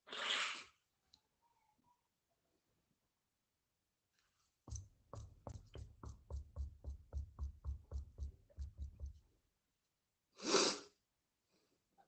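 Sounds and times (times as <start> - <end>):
light knocks with dull thud: 4.7 - 9.4.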